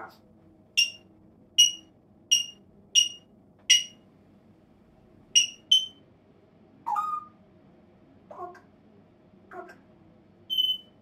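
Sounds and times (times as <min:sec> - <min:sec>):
parrot mimicking alarm beeps: 0:00.8 - 0:01.0, 0:01.6 - 0:04.0, 0:05.4 - 0:06.0, 0:10.5 - 0:10.9
parrot whistle: 0:00.8 - 0:01.0, 0:01.6 - 0:04.0, 0:05.4 - 0:06.0, 0:06.9 - 0:07.4, 0:10.5 - 0:10.9.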